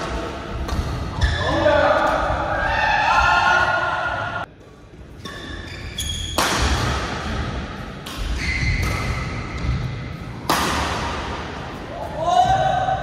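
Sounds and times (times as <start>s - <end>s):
rackets striking shuttlecock: 6.1s - 7.3s, 8.0s - 9.4s, 10.4s - 11.3s.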